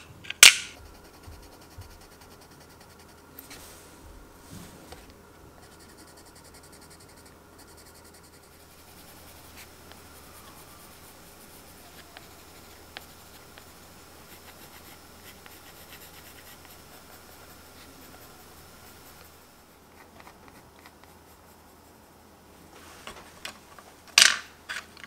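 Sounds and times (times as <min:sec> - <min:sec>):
pencil shading on paper: 0:00.8 - 0:03.7, 0:05.6 - 0:22.4.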